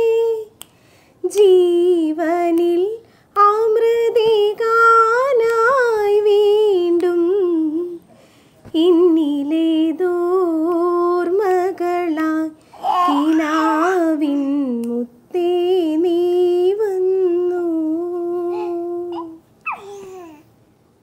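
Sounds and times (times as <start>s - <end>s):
woman humming: 17.2s - 19.4s.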